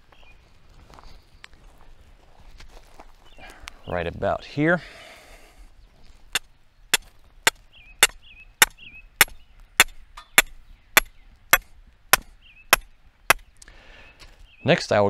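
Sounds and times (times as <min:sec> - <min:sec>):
hammer striking a stake: 0:06.3 - 0:13.5.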